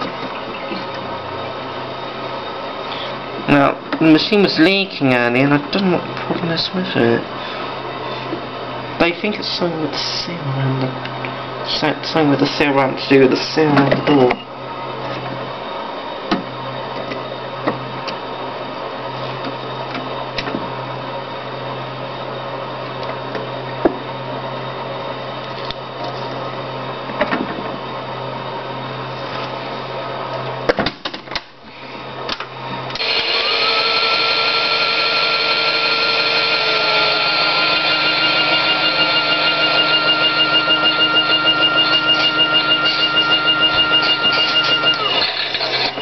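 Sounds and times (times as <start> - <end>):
small electric motor humming: 33.0 - 46.0.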